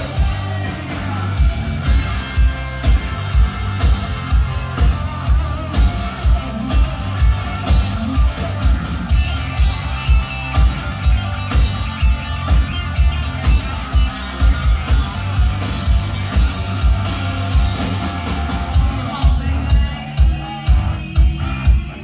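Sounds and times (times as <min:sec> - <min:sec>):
bass guitar: 0:00.0 - 0:22.0
electric guitar: 0:00.0 - 0:22.0.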